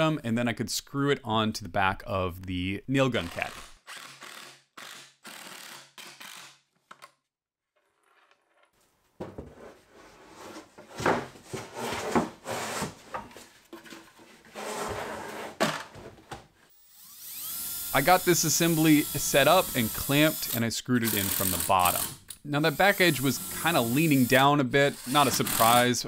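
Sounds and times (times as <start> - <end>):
cordless drill driving screws: 3.3 - 6.6, 16.7 - 25.9
wood scraping: 7.8 - 16.2.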